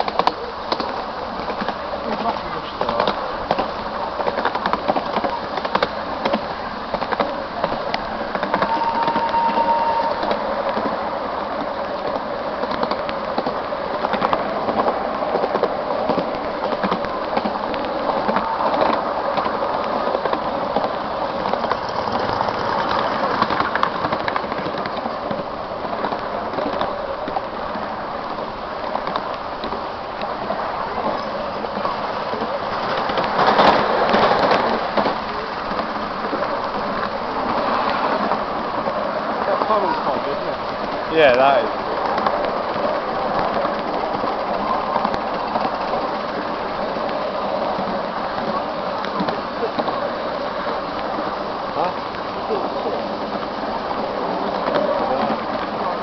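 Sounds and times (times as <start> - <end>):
train wheels rumbling on rails: 0.0 - 56.0
short high note: 8.6 - 10.5.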